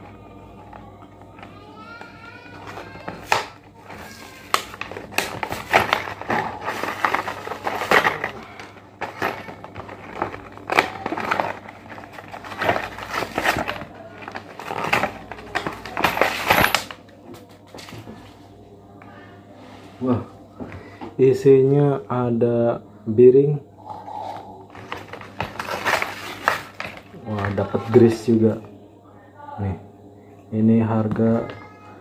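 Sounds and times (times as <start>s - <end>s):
plastic packaging crinkling: 1.3s - 18.2s, 24.7s - 28.3s.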